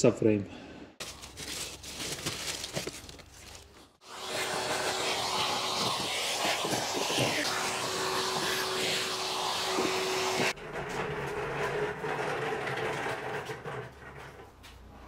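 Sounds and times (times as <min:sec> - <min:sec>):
vacuum hose sucking: 0:04.0 - 0:10.6.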